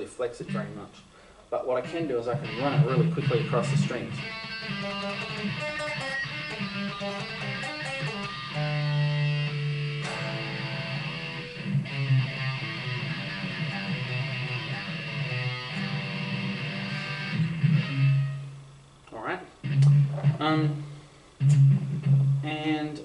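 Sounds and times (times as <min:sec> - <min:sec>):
electric guitar fast picking: 0:01.9 - 0:18.6.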